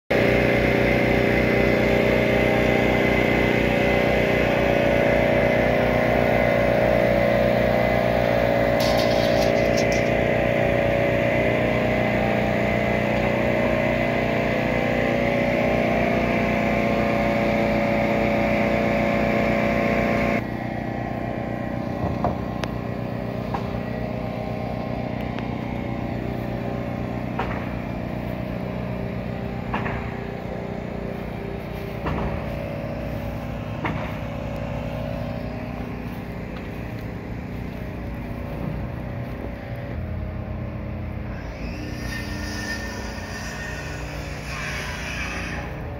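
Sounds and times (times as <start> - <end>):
engine pulsing drone: 0.1 - 45.9
sharp knocks: 32.0 - 32.5.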